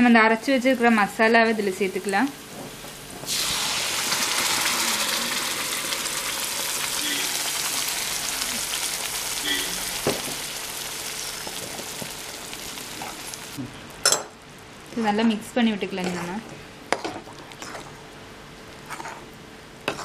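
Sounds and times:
paste sizzling in hot oil: 0:03.3 - 0:13.6.

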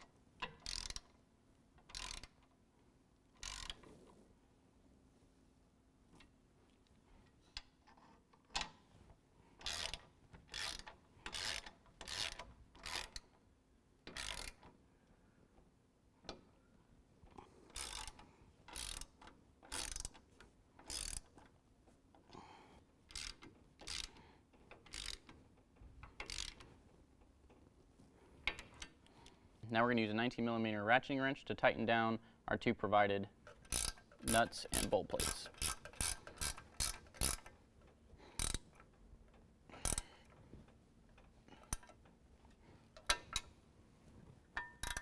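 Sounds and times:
socket ratchet clicking: 0:00.0 - 0:01.2, 0:01.8 - 0:02.5, 0:03.4 - 0:03.9, 0:09.6 - 0:13.4, 0:14.0 - 0:14.8, 0:17.7 - 0:21.5, 0:23.1 - 0:25.4, 0:26.0 - 0:26.8, 0:33.4 - 0:37.6, 0:38.3 - 0:40.4, 0:44.6 - 0:45.0.

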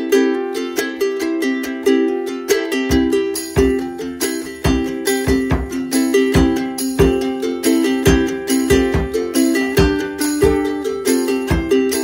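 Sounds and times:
plucked string instrument music: 0:00.0 - 0:12.0.

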